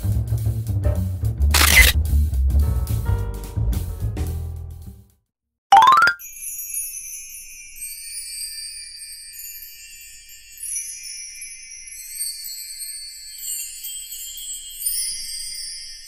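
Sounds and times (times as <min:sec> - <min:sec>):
jingle bell and chime music: 0:05.8 - 0:16.0.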